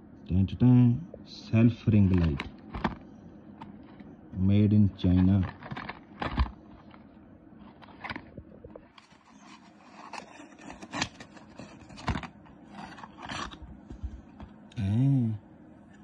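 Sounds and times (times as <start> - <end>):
cardboard box being opened: 7.7 - 8.3, 8.9 - 14.2.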